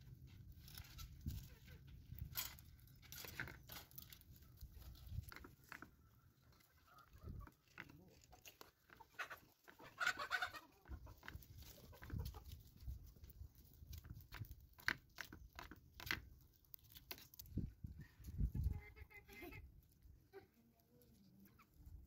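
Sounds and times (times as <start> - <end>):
chickens clucking: 0.8 - 13.2, 17.9 - 22.0.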